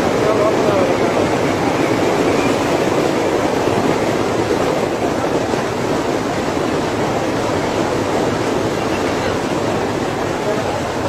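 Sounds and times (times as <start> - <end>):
train rumbling: 0.0 - 11.0
wind: 0.0 - 11.0.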